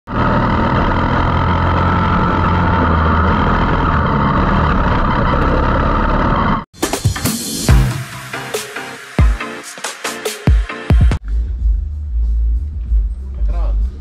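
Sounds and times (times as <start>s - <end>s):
kart engine running hard: 0.1s - 6.6s.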